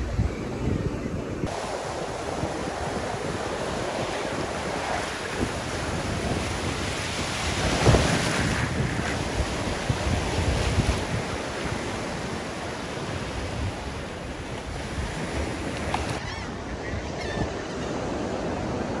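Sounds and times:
wind buffeting microphone: 0:00.0 - 0:17.6
surf breaking on beach: 0:01.3 - 0:16.2.

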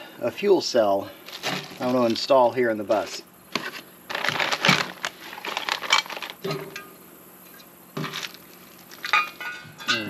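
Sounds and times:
plastic packaging crinkling: 0:04.1 - 0:06.4, 0:08.0 - 0:09.4.

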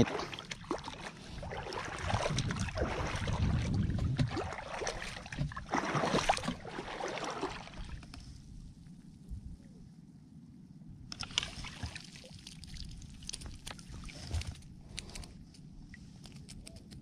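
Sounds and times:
shallow water splashing: 0:00.0 - 0:08.2, 0:11.2 - 0:14.7
small clicks: 0:16.2 - 0:17.0.

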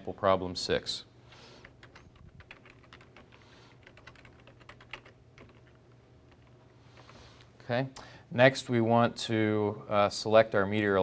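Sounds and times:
typing on computer keyboard: 0:01.6 - 0:07.1.

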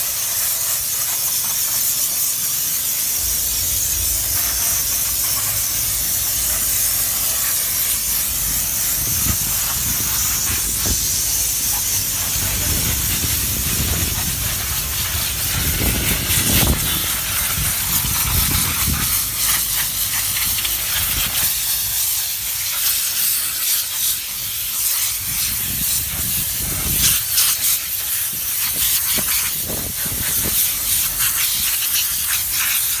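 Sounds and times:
steam gun hissing: 0:00.0 - 0:33.0
low rumbles: 0:03.1 - 0:21.4.

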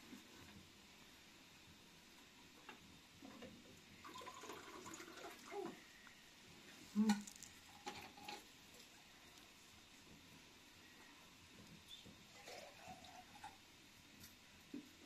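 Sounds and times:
water pouring into container: 0:04.0 - 0:05.7, 0:12.3 - 0:13.6.

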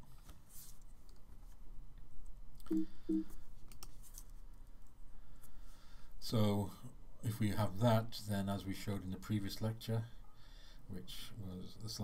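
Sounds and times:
computer mouse clicks: 0:02.6 - 0:04.0.

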